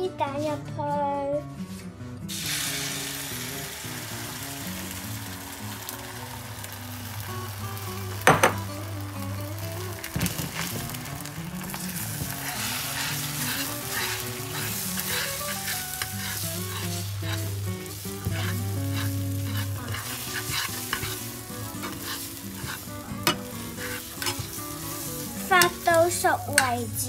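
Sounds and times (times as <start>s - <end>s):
egg sizzling in frying pan: 2.3s - 27.0s
metal spoon scraping pan: 12.4s - 26.7s.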